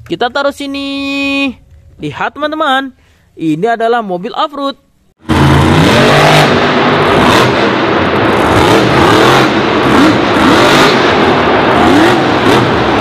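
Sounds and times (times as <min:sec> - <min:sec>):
truck engine revving: 0:05.2 - 0:13.0.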